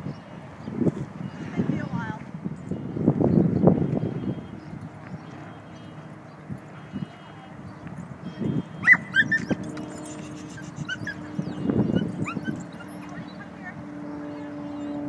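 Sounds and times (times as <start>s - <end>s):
dog yipping and whining: 8.8s - 13.4s.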